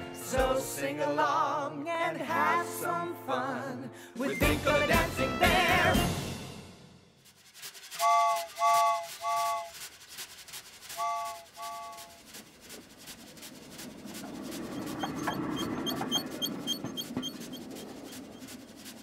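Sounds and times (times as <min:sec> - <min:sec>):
steam train chuffing: 0:04.4 - 0:19.0
train whistle toots: 0:07.9 - 0:09.8, 0:10.9 - 0:12.4.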